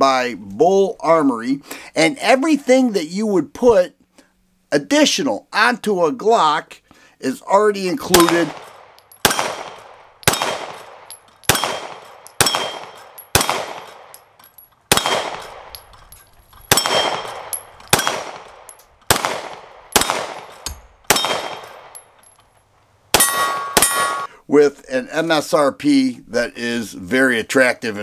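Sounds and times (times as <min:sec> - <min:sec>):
pistol shots: 0:08.1 - 0:14.2, 0:14.9 - 0:15.9, 0:16.6 - 0:22.1, 0:23.1 - 0:24.3
steel target plate ringing: 0:10.2 - 0:13.5, 0:14.1 - 0:18.9, 0:23.2 - 0:24.3.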